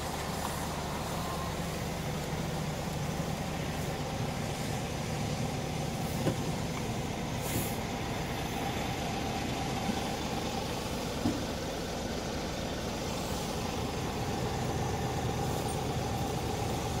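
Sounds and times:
diesel engine idling: 0.0 - 17.0
brief hiss: 7.4 - 7.9.

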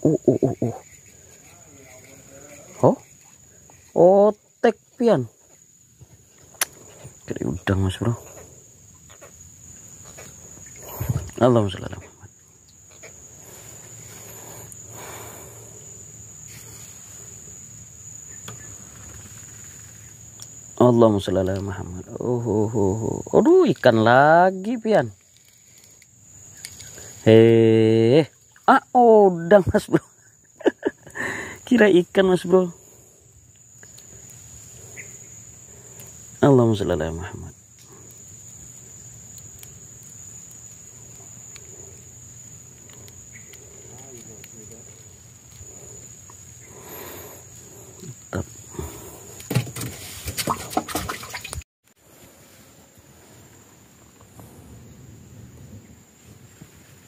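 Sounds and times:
insects droning high whine: 0.0 - 57.0.

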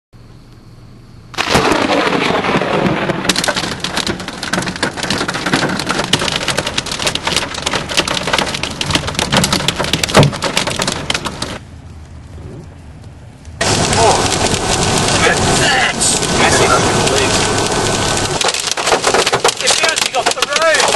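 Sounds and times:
loud hail crack: 1.3 - 11.6, 13.6 - 20.9
heavy rain: 1.4 - 11.7, 13.6 - 20.9
hail clattering on car: 3.3 - 11.6, 13.6 - 20.9.

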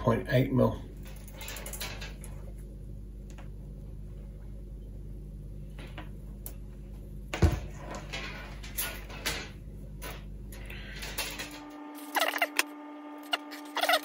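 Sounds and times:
steady low hum: 0.0 - 14.0
wire rustling and clicking: 1.0 - 3.6.

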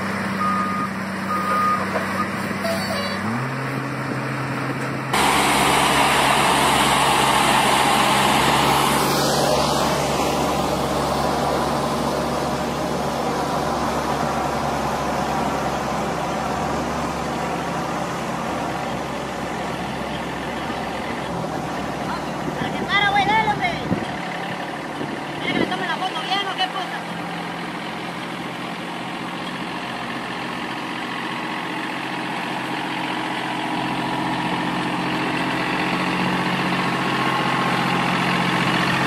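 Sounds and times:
heavy truck engine running: 0.0 - 39.0
engines and machinery working: 3.2 - 22.0.

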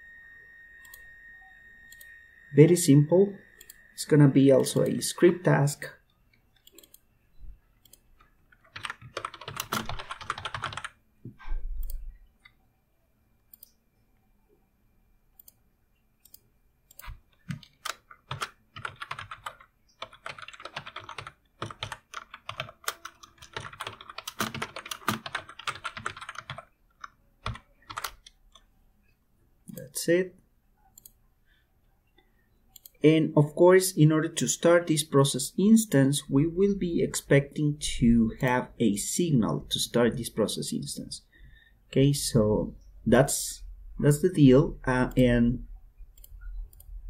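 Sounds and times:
typing on keyboard: 7.9 - 11.0, 16.3 - 28.7.

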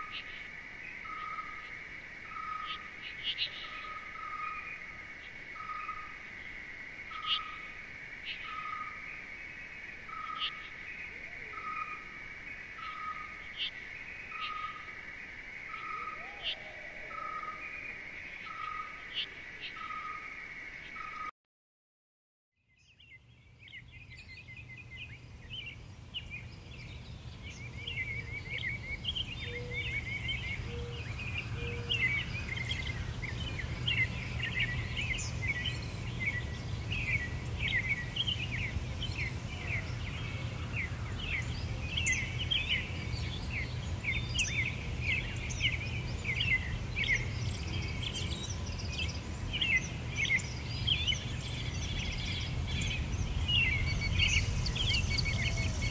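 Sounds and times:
small birds chirping: 0.0 - 21.3, 22.6 - 55.9
low steady rumble: 23.4 - 55.9.

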